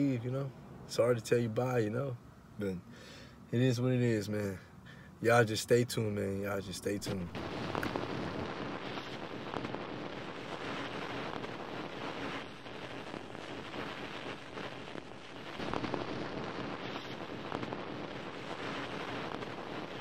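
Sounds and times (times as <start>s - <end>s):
rushing static noise: 6.7s - 20.0s
low rumble: 7.0s - 8.8s.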